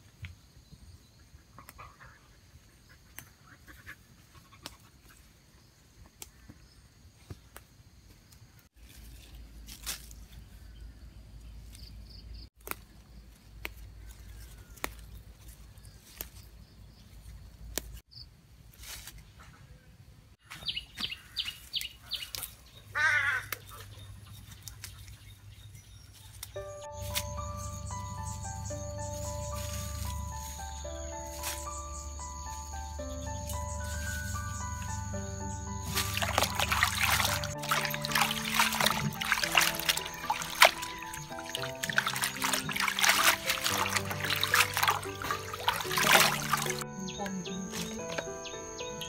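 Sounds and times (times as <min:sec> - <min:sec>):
leaves and stems rustling and snapping: 0:08.8 - 0:10.4, 0:12.6 - 0:18.0, 0:21.6 - 0:22.6, 0:26.1 - 0:27.6, 0:28.3 - 0:46.8, 0:47.6 - 0:48.3
birds chirping: 0:20.4 - 0:49.0.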